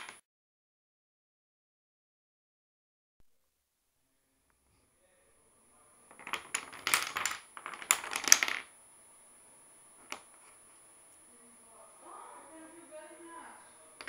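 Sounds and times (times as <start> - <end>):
wooden dominoes clattering: 0.0 - 0.2, 6.1 - 8.7, 10.0 - 10.5.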